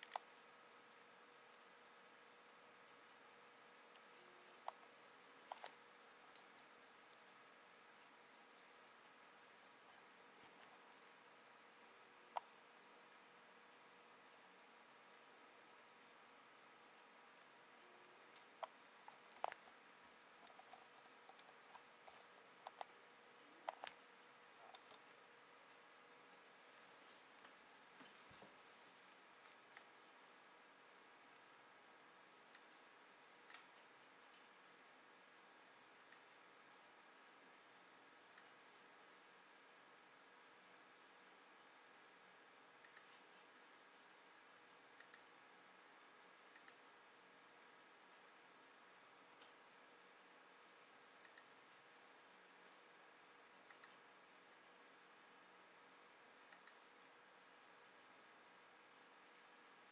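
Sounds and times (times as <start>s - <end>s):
computer mouse clicks: 0.0s - 0.6s, 3.2s - 7.3s, 12.2s - 12.6s, 17.7s - 19.8s, 20.4s - 23.0s, 23.6s - 24.0s, 24.6s - 25.1s, 32.5s - 32.8s, 33.4s - 34.5s, 36.1s - 36.4s, 42.8s - 43.4s, 44.9s - 45.4s, 46.5s - 46.9s, 51.2s - 51.6s, 53.6s - 54.0s, 56.4s - 57.0s
faint steady hiss: 0.0s - 59.9s.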